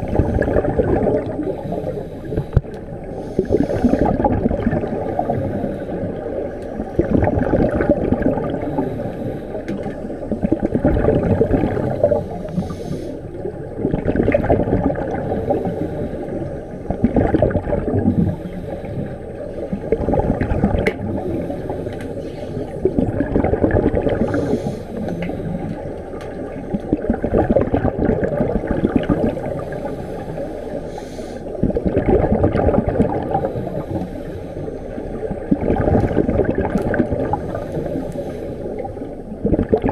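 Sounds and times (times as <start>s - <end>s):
exhaled bubbles gurgling underwater: 0.0s - 39.9s.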